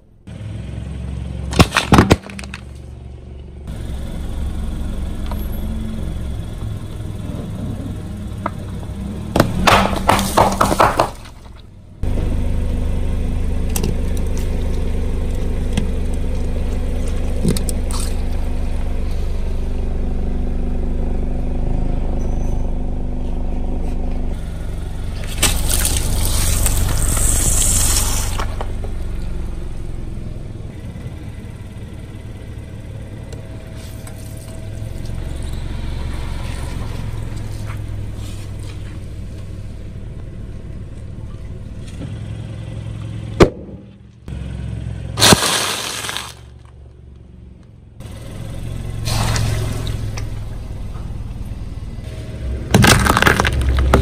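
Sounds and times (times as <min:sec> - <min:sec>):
car engine running: 0:00.0 - 0:54.0
tyre crunching objects: 0:01.5 - 0:02.9, 0:09.3 - 0:11.7, 0:25.2 - 0:28.7, 0:45.2 - 0:46.7, 0:52.7 - 0:54.0.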